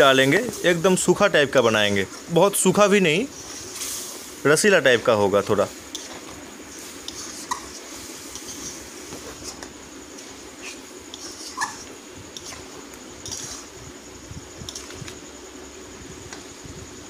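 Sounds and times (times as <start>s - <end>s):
metal ladle scraping a pan: 6.8s - 9.6s, 10.2s - 13.8s
short high squeaks: 10.6s - 11.9s.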